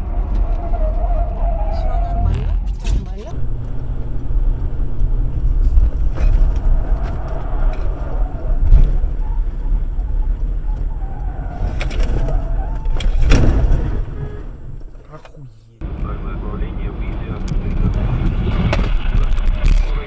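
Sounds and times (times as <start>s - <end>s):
road and engine rumble: 0.0s - 20.0s.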